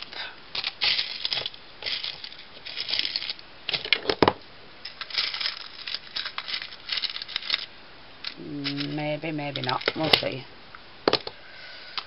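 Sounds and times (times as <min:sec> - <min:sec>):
beads rustling and clicking: 0:00.5 - 0:04.0, 0:04.8 - 0:10.4.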